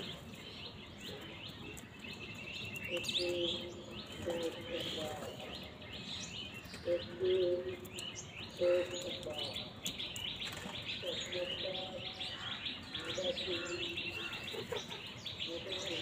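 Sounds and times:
small birds chirping: 0.0s - 16.0s
crows cawing: 12.3s - 14.6s.

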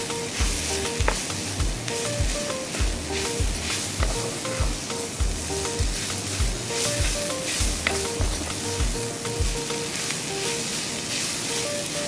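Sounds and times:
background music with bass beat: 0.0s - 9.8s
vegetables sizzling in hot oil: 0.0s - 12.0s
spatula stirring in pan: 6.0s - 8.6s, 9.8s - 12.0s.

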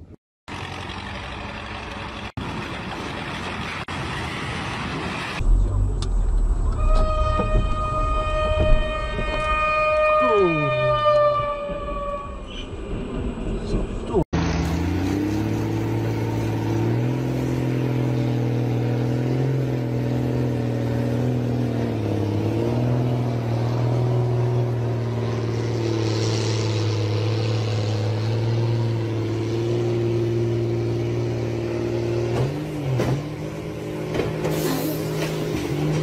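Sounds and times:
heavy engines under load: 0.0s - 36.0s.

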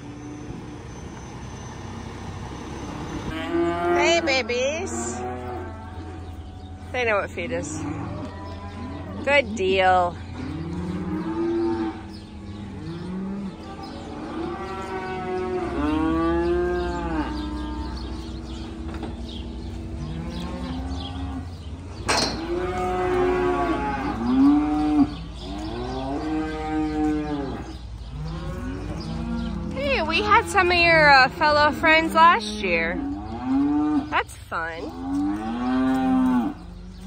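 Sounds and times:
calves mooing: 2.8s - 37.0s.

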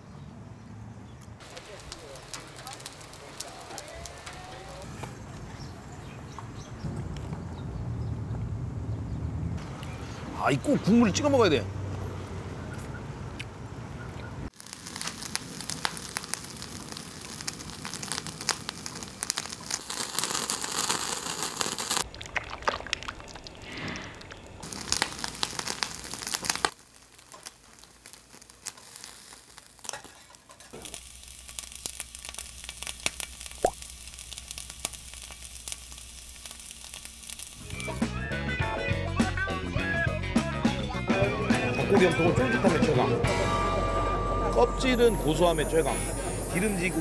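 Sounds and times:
food crackling and sizzling: 1.4s - 5.2s, 14.5s - 38.5s, 44.7s - 47.0s
skewers sizzling on grill: 1.4s - 5.2s, 14.5s - 22.1s, 23.2s - 40.2s, 41.0s - 47.0s.

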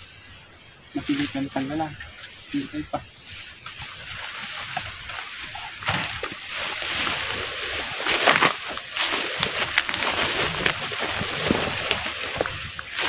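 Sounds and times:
leaves and stems rustling: 0.9s - 13.0s
footsteps through tall grass: 3.0s - 13.0s
stems snapping: 8.0s - 13.0s.

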